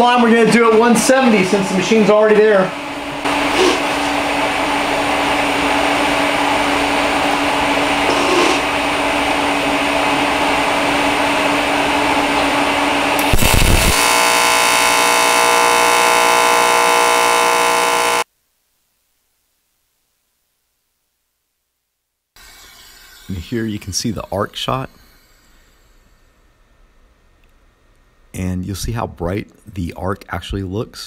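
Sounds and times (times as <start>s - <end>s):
machine hum and hiss: 0.0s - 18.3s, 22.4s - 31.0s
welding arc buzzing: 3.2s - 9.2s, 11.3s - 18.3s.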